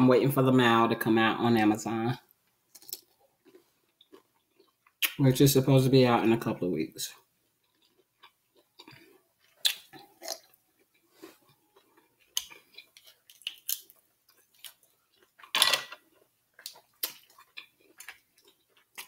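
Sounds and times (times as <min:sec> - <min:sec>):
chewing: 0:02.7 - 0:05.2, 0:07.2 - 0:19.0
mussel shells clicking and crackling: 0:11.8 - 0:19.0.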